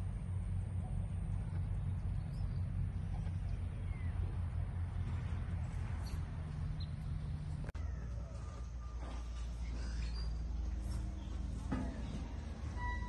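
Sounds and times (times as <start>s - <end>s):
steady low rumble: 0.0s - 9.7s
faint bird chirps: 7.8s - 11.4s.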